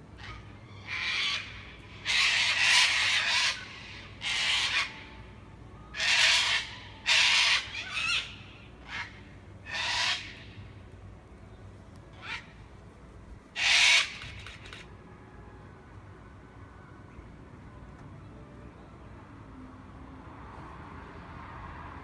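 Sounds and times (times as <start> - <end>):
cockatoos screeching: 0.2 - 5.2, 6.0 - 10.5, 13.6 - 14.8.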